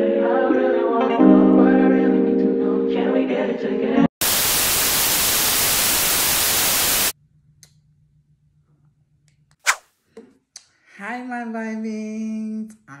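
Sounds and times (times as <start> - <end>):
white-noise static burst: 4.2 - 7.2.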